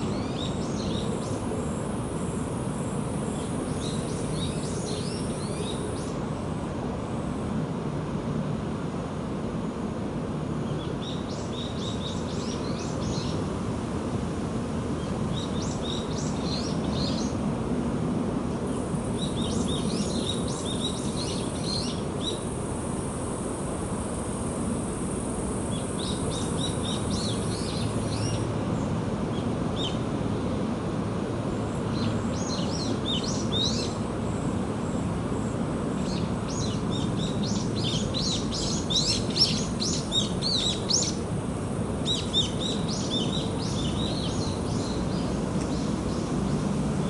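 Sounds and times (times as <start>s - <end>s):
songbird twittering chirps: 0.0s - 1.8s, 3.2s - 6.2s, 10.6s - 13.5s, 15.0s - 17.4s, 18.7s - 22.5s, 25.7s - 30.0s, 31.7s - 34.0s, 35.9s - 41.2s, 42.0s - 46.8s.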